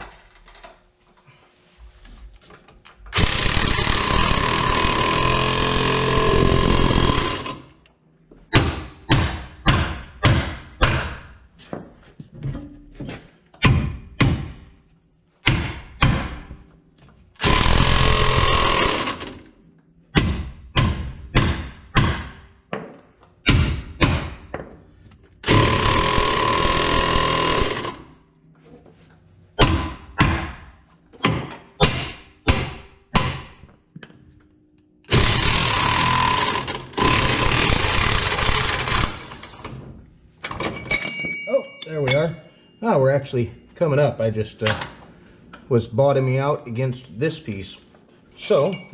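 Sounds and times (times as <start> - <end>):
impact wrench hammering: 3.1 - 7.7, 8.5 - 11.4, 15.4 - 16.6, 17.4 - 19.5, 20.1 - 22.5, 23.4 - 24.7, 25.4 - 28.0, 29.6 - 33.7, 35.1 - 39.6
sharp metal knocks: 8.5 - 11.3, 29.6 - 33.6.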